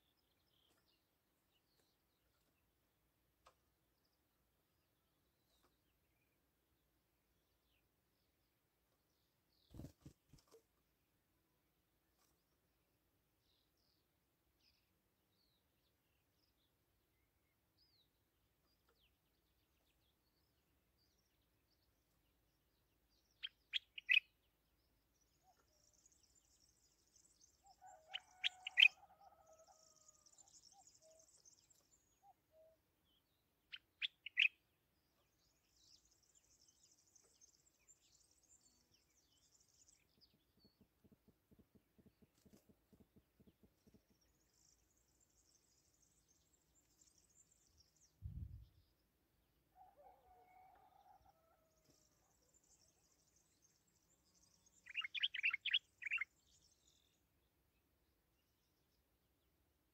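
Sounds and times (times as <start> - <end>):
songbird calling sharp notes: 54.8 - 56.3.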